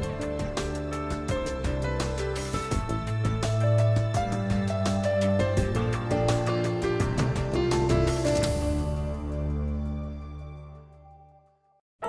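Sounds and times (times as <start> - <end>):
background music with quick beat: 0.0 - 9.3.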